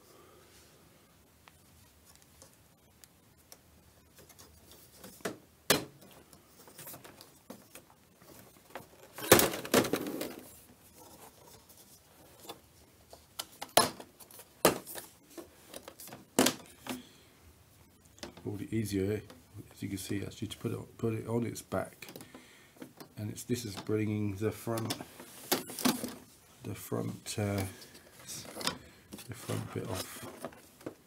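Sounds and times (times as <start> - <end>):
plastic clatter: 4.1 - 11.6, 24.7 - 26.3, 27.5 - 31.0.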